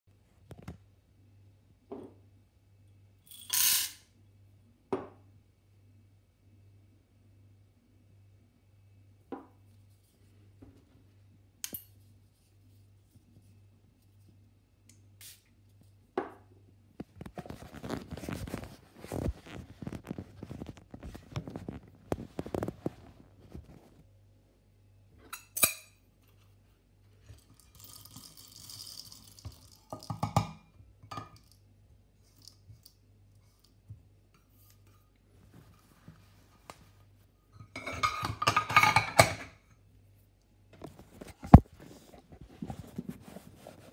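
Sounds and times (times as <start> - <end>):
coffee beans poured rattling: 27.4 - 30.1.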